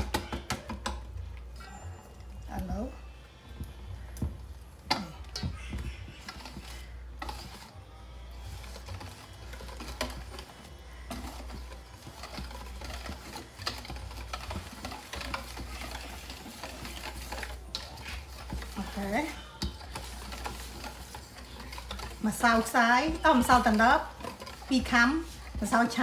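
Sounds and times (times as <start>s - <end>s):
kitchen utensils clicking: 8.5s - 26.0s.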